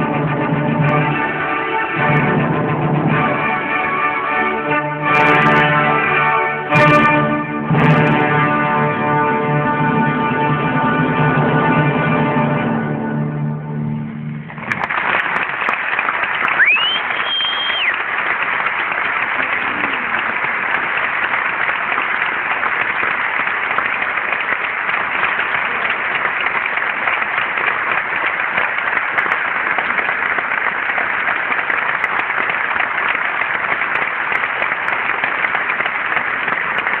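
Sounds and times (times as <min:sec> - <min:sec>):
audience applauding: 0:14.4 - 0:37.0.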